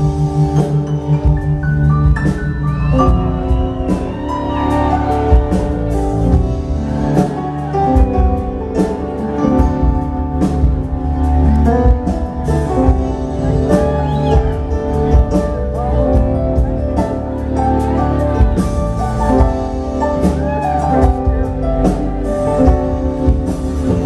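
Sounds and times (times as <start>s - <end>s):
rock band playing live: 0.0s - 24.0s.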